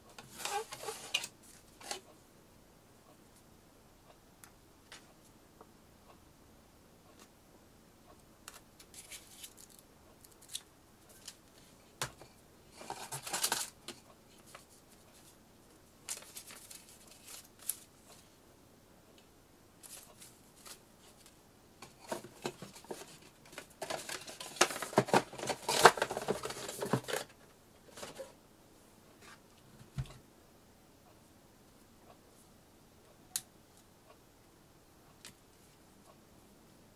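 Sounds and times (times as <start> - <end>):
paper rustling: 8.8 - 11.8, 12.7 - 15.3, 16.1 - 18.2, 19.8 - 28.4.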